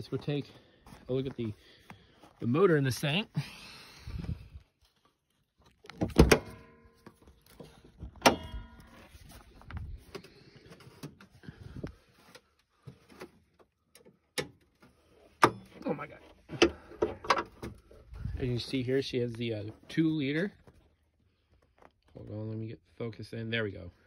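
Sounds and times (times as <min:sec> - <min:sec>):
metallic clunks with ringing: 0:08.2 - 0:09.0.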